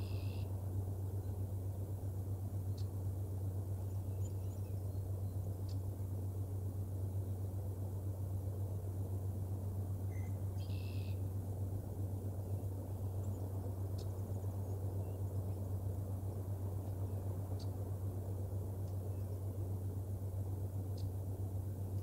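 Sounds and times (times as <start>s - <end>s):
faint bird chirps: 0.0s - 1.9s, 3.7s - 6.0s, 10.0s - 11.3s, 12.4s - 17.9s, 18.8s - 19.7s
low hum and rumble: 0.0s - 22.0s.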